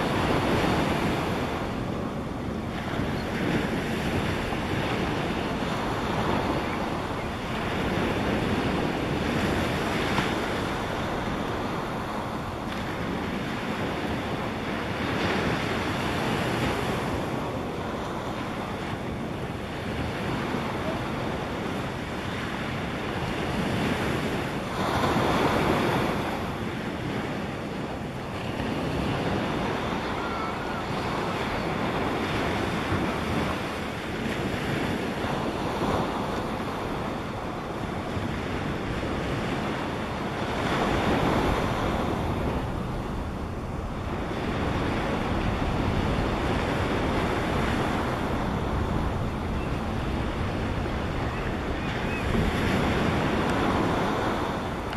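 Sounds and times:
wind rushing over microphone: 0.0s - 54.9s.

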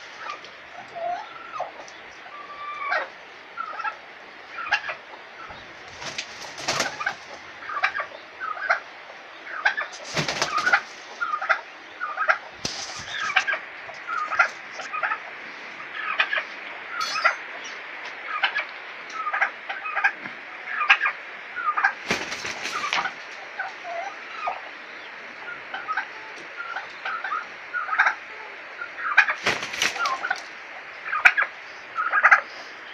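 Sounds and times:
turkey and rooster clucking: 0.0s - 32.9s
wings flapping: 5.7s - 7.9s, 9.7s - 11.5s, 12.6s - 14.9s, 21.9s - 23.5s, 29.2s - 30.6s.

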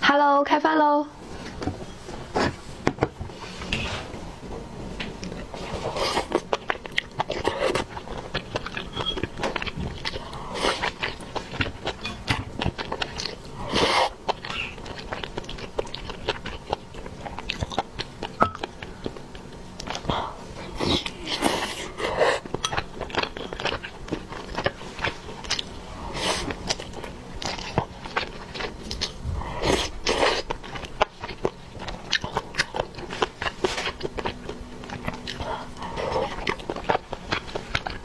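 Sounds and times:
person chewing: 5.0s - 38.0s.

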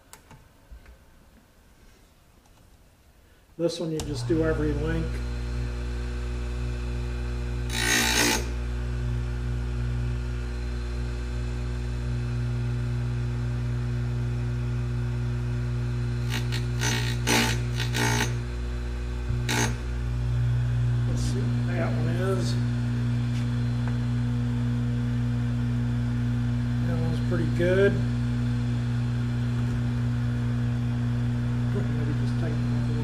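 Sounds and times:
electric motor humming: 3.9s - 33.0s
grinding wheel on steel: 4.0s - 12.5s, 15.4s - 33.0s.

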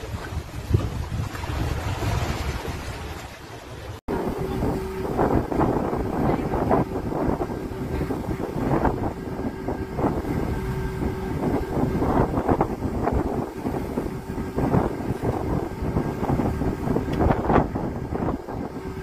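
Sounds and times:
wind buffeting microphone: 0.0s - 3.3s, 4.1s - 19.0s
low rumble: 4.1s - 19.0s.

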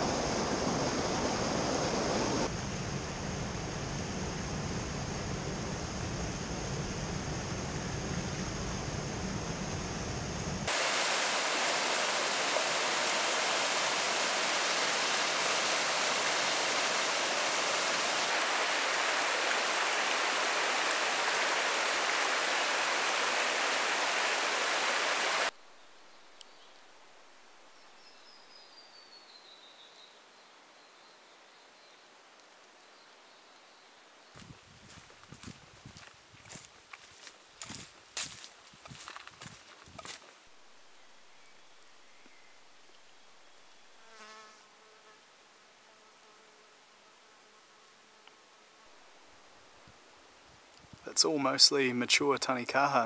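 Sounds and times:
rushing stream water: 0.0s - 2.5s, 10.7s - 25.6s, 48.9s - 53.0s.

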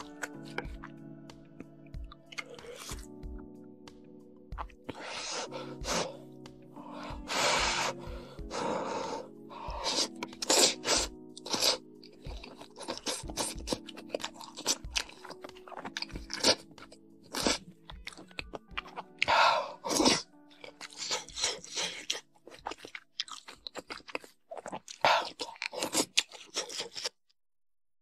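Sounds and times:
close chewing with wet clicks: 0.0s - 1.0s, 1.6s - 3.1s, 10.2s - 27.2s
quiet background music: 0.0s - 27.1s
noodles slurped: 2.2s - 3.1s, 6.8s - 27.2s.

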